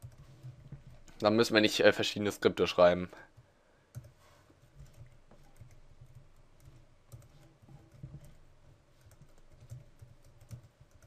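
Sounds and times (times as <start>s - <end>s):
typing on computer keyboard: 3.9s - 4.2s, 4.8s - 8.4s, 9.0s - 11.0s.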